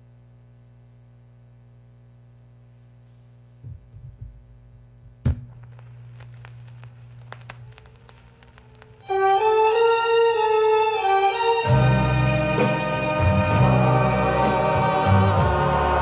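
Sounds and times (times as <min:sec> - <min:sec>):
steady amplifier hum: 0:00.0 - 0:16.0
low thumps: 0:03.6 - 0:09.0
stylus landing on record: 0:03.6 - 0:09.1
vinyl crackle and pops: 0:03.7 - 0:14.7
string music: 0:09.0 - 0:16.0.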